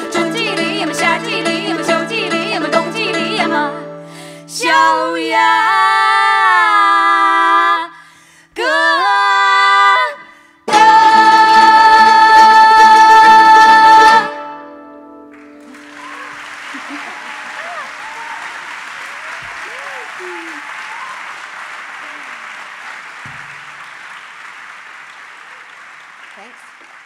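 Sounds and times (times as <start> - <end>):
banjo: 0.0 - 4.1, 10.7 - 15.6
two women singing: 0.0 - 14.4.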